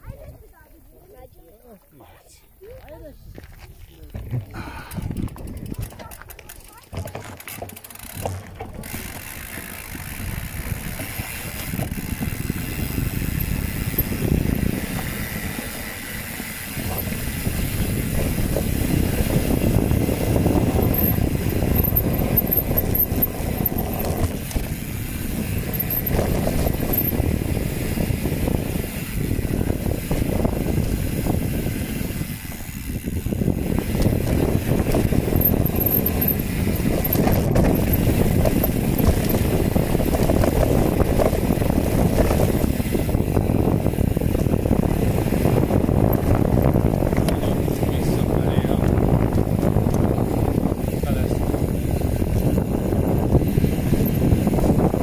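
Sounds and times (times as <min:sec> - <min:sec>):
wind buffeting the microphone: 0:00.0 - 0:55.0
bicycle rolling over a trail: 0:02.6 - 0:55.0
short rattles or knocks: 0:04.2 - 0:11.7, 0:33.9 - 0:41.4.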